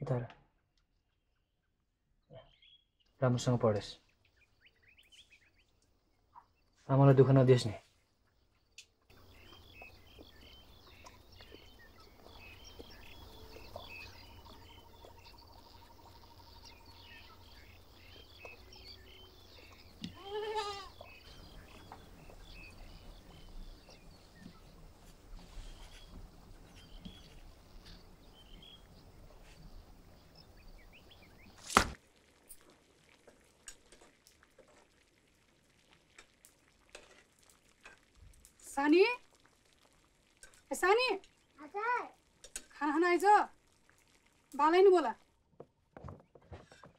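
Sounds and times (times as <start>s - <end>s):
young goat bleating: 20.0s - 21.0s.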